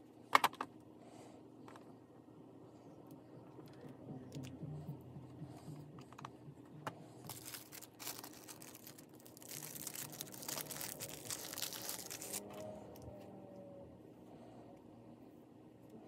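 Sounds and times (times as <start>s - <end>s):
crinkling and rustling: 7.2s - 13.3s.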